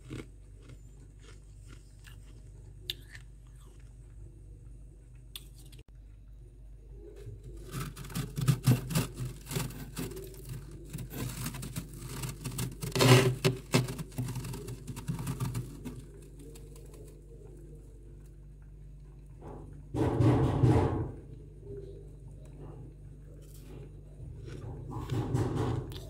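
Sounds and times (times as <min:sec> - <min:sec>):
steady low hum: 0:00.0 - 0:26.0
frost crunching under hand: 0:07.4 - 0:18.3.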